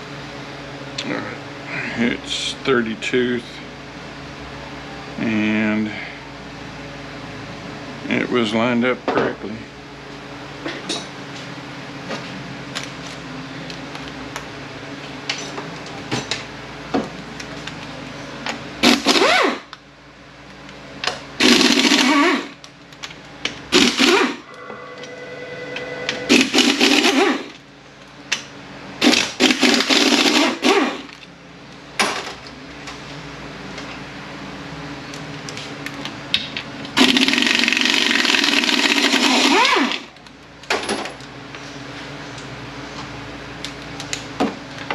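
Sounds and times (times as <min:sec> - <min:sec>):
power wrench bursts: 0:18.8 - 0:19.6, 0:21.4 - 0:22.6, 0:23.7 - 0:24.4, 0:26.3 - 0:27.6, 0:29.0 - 0:31.1, 0:37.0 - 0:40.1.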